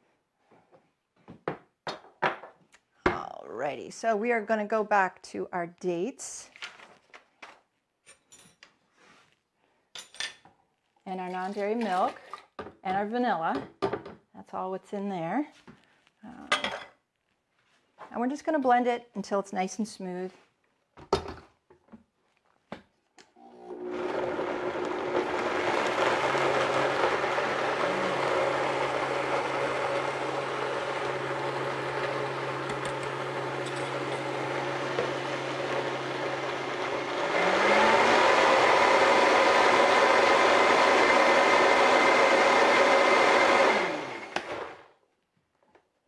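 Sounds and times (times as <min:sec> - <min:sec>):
blender running: 0:23.4 - 0:44.9.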